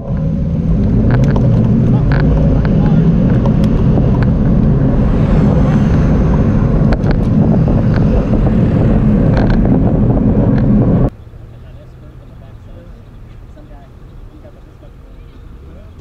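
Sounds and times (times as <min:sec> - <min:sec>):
wind rushing over microphone: 0:00.0 - 0:11.1.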